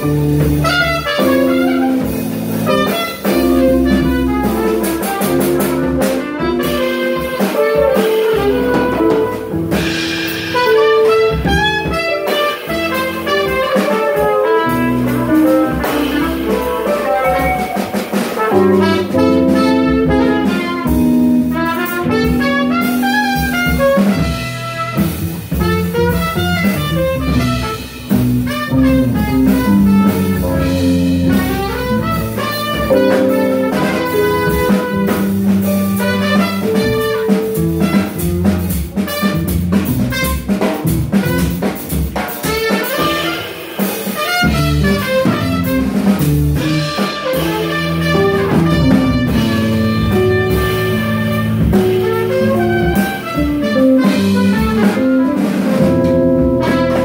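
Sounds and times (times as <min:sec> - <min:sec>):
trumpet playing: 0:00.0 - 0:09.8, 0:10.5 - 0:41.7, 0:42.4 - 0:57.0
drums: 0:00.0 - 0:57.0
guitar chords: 0:15.0 - 0:21.5, 0:32.7 - 0:35.1.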